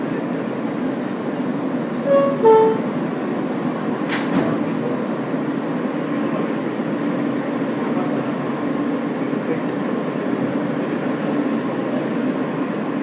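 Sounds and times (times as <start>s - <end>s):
subway car humming: 0.0s - 13.0s
two-note door chime: 2.1s - 2.9s.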